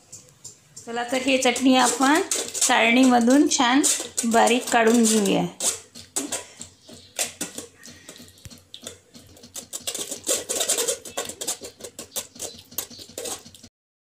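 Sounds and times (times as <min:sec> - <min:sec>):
spoon scraping mesh strainer: 0:00.0 - 0:13.7.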